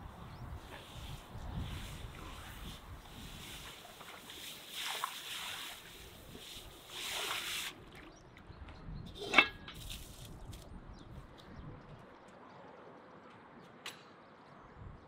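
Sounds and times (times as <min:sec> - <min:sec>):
pot being scrubbed by hand: 0:00.7 - 0:07.8
hose spray hissing into metal pot: 0:00.9 - 0:07.8.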